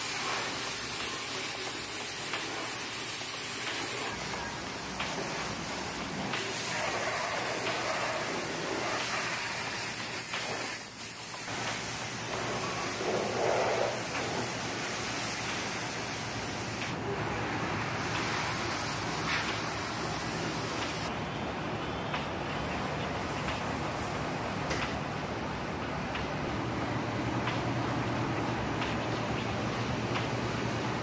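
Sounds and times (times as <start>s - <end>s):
pressure washer spraying water: 0.0s - 21.2s.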